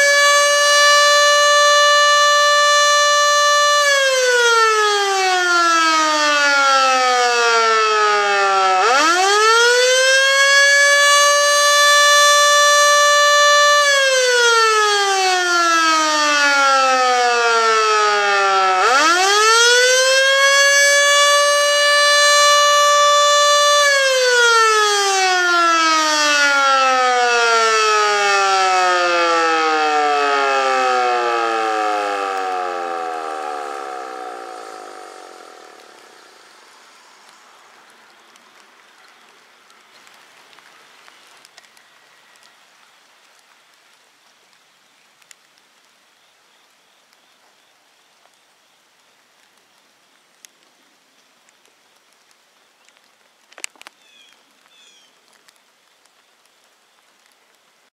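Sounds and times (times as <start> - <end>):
siren rising and falling wail: 0.0 - 37.4.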